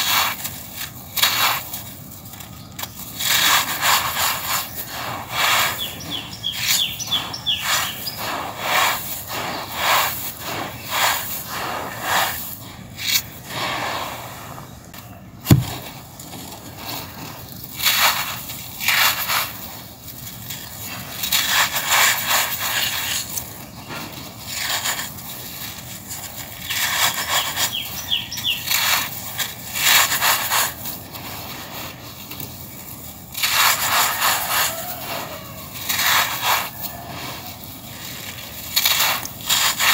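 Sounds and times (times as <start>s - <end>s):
grit pouring through fingers: 0.0s - 39.9s
gritty stone crunching by hand: 14.9s - 27.7s, 28.4s - 39.9s.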